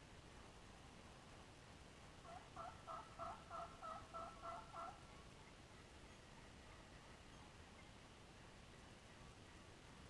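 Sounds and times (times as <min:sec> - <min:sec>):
faint background hiss: 0:00.0 - 0:10.0.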